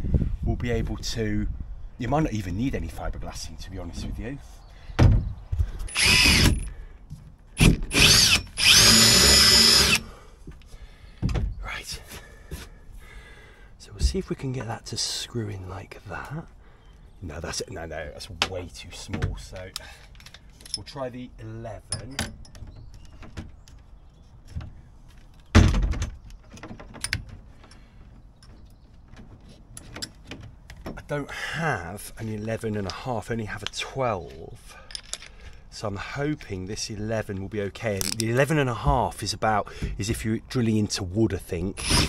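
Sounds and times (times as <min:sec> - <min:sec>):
electric drill whining: 0:05.9 - 0:06.7, 0:07.6 - 0:10.1
tools clicking and knocking: 0:18.4 - 0:20.9, 0:21.9 - 0:23.9, 0:24.5 - 0:27.8, 0:34.8 - 0:35.4, 0:38.0 - 0:38.4.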